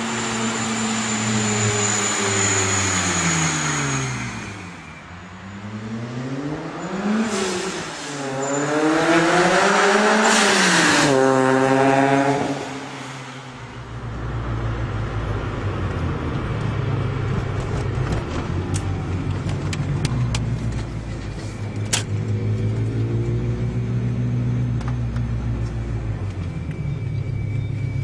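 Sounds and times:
car engine droning: 0:00.0 - 0:28.0.

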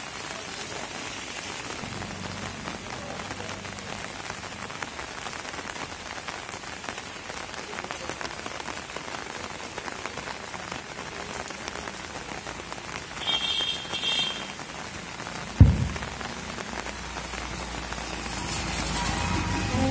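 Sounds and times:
rain falling: 0:00.0 - 0:19.9
dull thump: 0:15.6 - 0:16.1.

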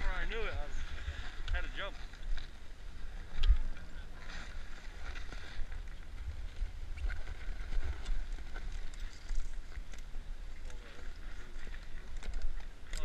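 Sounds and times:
wind rumbling on microphone: 0:00.0 - 0:13.0.

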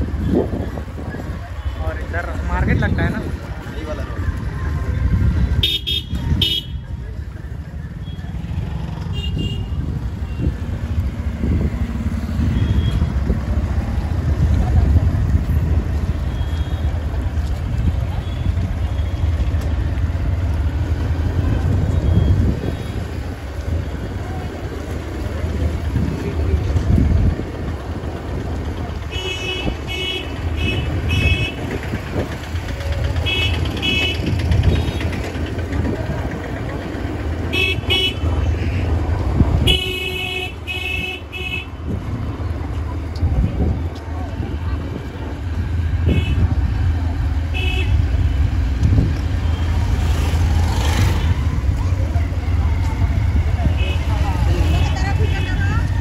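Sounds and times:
wind on microphone: 0:00.0 - 0:01.6, 0:21.4 - 0:29.9, 0:41.7 - 0:47.1
motorcycle engine rumble: 0:00.0 - 0:56.0
traffic: 0:00.0 - 0:56.0.

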